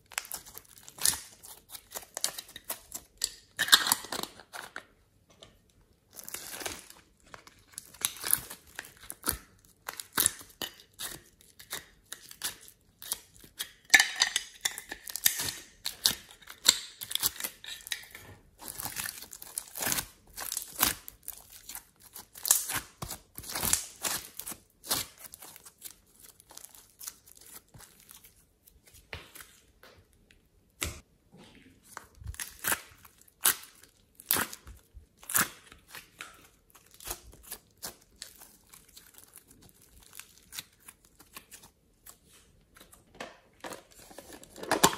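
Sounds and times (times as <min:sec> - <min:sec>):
plastic crinkling and tearing: 0:00.0 - 0:04.8, 0:06.1 - 0:10.6, 0:14.8 - 0:28.8, 0:31.8 - 0:43.0.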